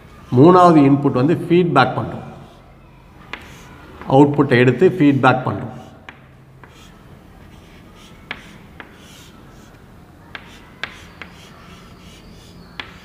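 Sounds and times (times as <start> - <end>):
chalk scratching on chalkboard: 2.2 - 2.7, 3.3 - 4.1, 5.6 - 13.0
chalk tapping on board: 3.3 - 4.1, 5.8 - 13.0.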